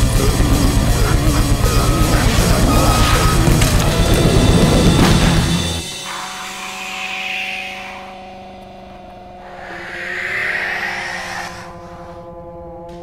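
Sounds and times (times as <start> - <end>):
low droning chord: 0.0 - 13.0
cat hissing: 9.4 - 12.2.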